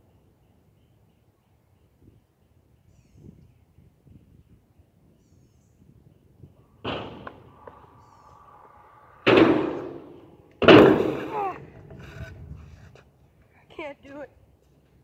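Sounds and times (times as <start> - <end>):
scooter banging on ramp: 6.8 - 7.9, 9.2 - 12.2
scooter wheels rolling: 7.1 - 13.5.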